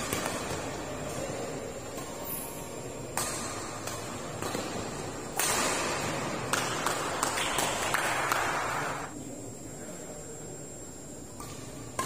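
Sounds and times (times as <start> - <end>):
shuttlecock struck by rackets: 3.1 - 8.9
sharp claps: 6.5 - 9.1.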